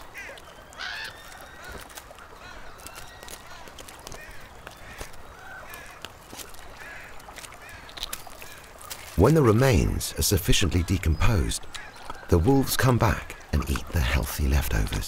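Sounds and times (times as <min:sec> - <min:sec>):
crows cawing: 0:00.0 - 0:09.2.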